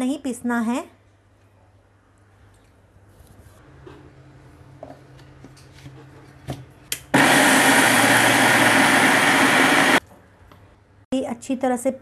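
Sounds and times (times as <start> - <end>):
electric mixer grinder running: 7.2 - 10.0.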